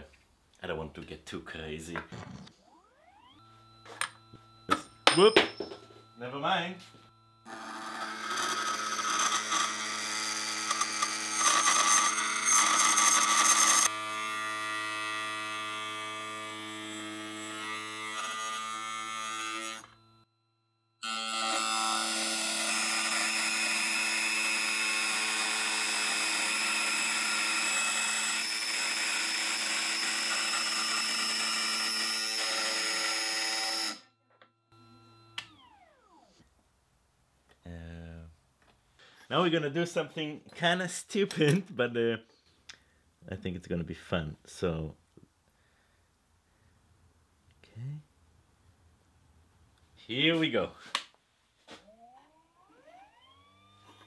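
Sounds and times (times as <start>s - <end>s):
router cutting brass whine: 2.6s - 36.4s, 51.9s - 54.0s.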